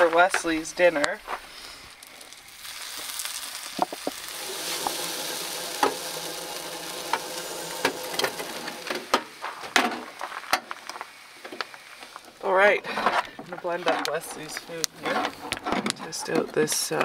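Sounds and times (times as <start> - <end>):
hash browns sizzling in a pan: 0.0 - 13.0
sharp clicks and knocks: 13.4 - 17.0.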